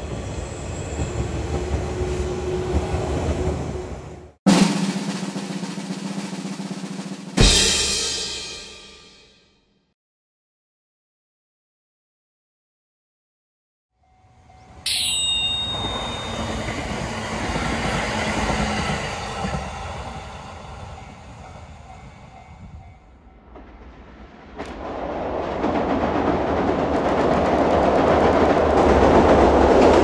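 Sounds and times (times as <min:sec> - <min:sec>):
train running: 0:00.0 - 0:05.4, 0:14.0 - 0:30.0
sharp high ringing sound: 0:14.1 - 0:17.6.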